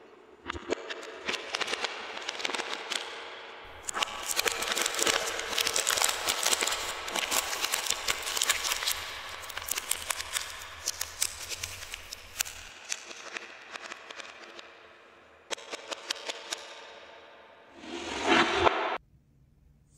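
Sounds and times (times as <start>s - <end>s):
plastic wrapper crinkling: 3.7s - 12.7s.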